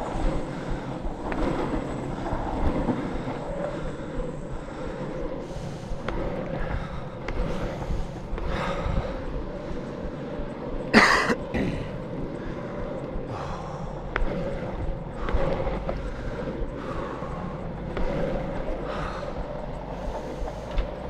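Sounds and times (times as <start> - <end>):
longboard wheels rolling on concrete: 0.0 - 21.0
soft whooshing bursts: 0.0 - 21.0.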